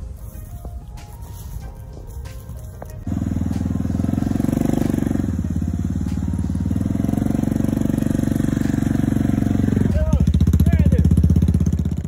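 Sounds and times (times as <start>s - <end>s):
quad bike engine running: 2.8s - 12.0s.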